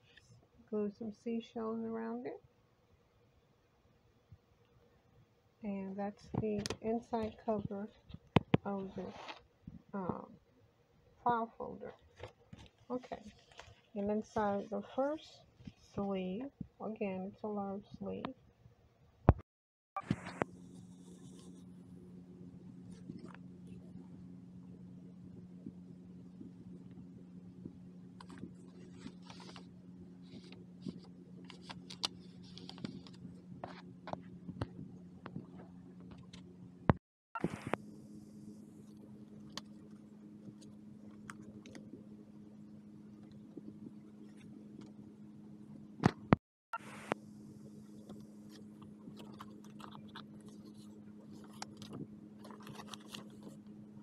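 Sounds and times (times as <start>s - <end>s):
steady low hum: 0.0s - 18.4s, 20.0s - 54.0s
paper pages rustling and tapping: 12.1s - 13.9s, 28.2s - 36.4s, 48.1s - 53.6s.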